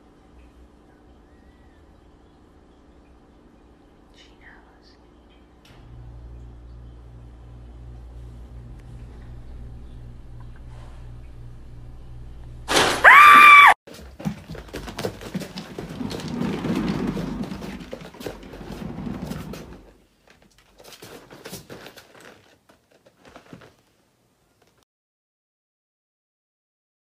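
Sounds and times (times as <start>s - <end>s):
cat wheel thumping and rumbling: 13.9s - 23.8s.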